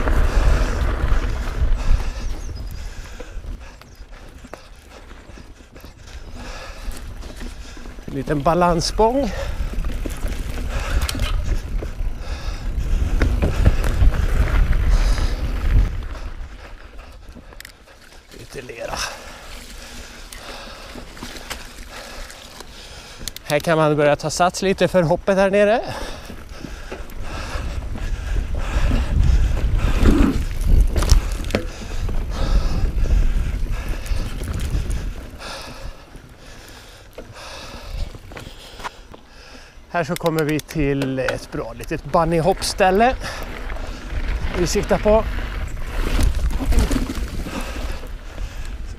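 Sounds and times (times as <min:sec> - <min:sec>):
wind rumble on microphone: 0:00.0 - 0:17.7, 0:25.9 - 0:36.3, 0:41.6 - 0:48.9
bike clicks and rattles: 0:00.0 - 0:48.9
tyre noise on dirt: 0:00.0 - 0:48.9
bike knocks and rattles: 0:29.4 - 0:33.0, 0:45.9 - 0:48.0.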